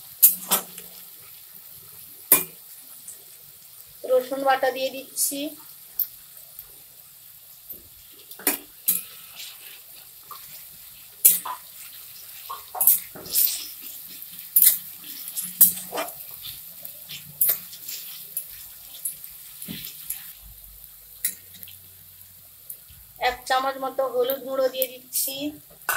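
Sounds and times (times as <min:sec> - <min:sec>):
faint oil sizzle: 0:00.0 - 0:25.9
spatula scraping a pan: 0:08.0 - 0:20.4.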